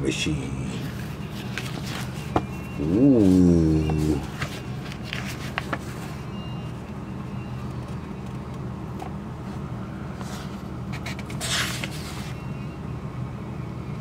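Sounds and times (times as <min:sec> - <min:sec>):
steady low hum: 0:00.0 - 0:14.0
paper page turning: 0:00.8 - 0:02.4, 0:03.2 - 0:06.2, 0:10.2 - 0:12.4.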